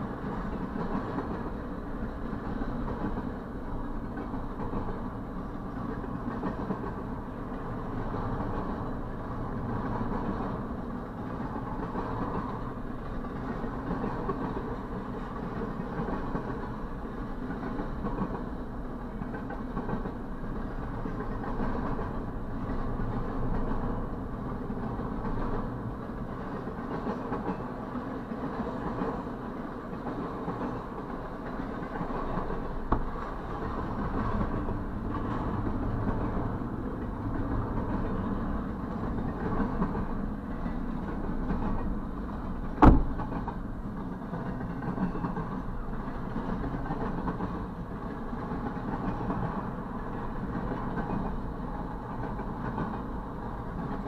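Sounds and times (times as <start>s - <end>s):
freight train wheels rumbling: 0.0s - 54.0s
sharp knock: 42.8s - 43.2s.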